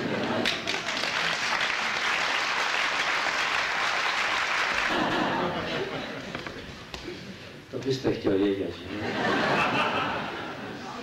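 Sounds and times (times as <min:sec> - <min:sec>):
audience applause: 0:00.0 - 0:05.5.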